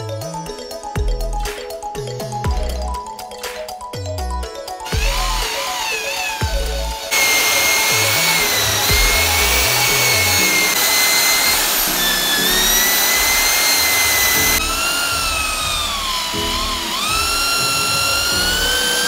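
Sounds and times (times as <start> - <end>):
electric drill motor whine: 4.8 - 19.0.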